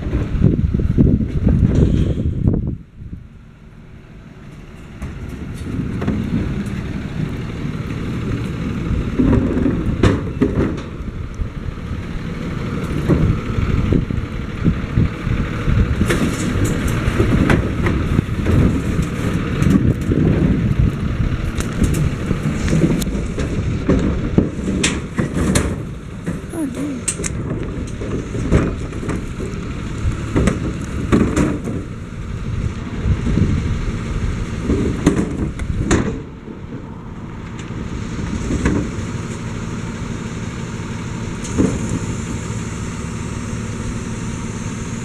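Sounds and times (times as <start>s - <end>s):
truck engine rumbling: 0.0s - 45.0s
knocks and rattles: 9.1s - 11.0s.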